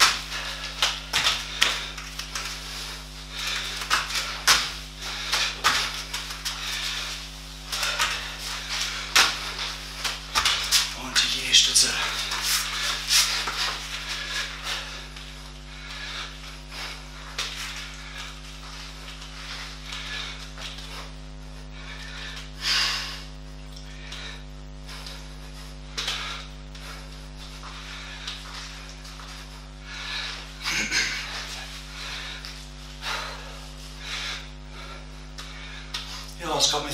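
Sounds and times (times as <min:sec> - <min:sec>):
electrical mains hum: 0:00.0 - 0:36.9
man breathing: 0:00.0 - 0:36.9
movements on a mat: 0:00.0 - 0:36.9.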